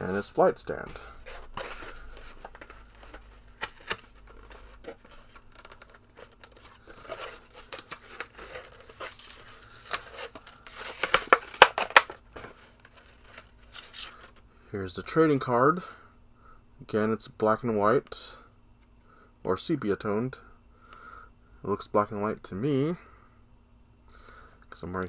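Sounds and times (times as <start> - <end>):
packaging rustling and clicking: 1.2 - 14.4
packaging tearing and crackling: 1.3 - 14.3.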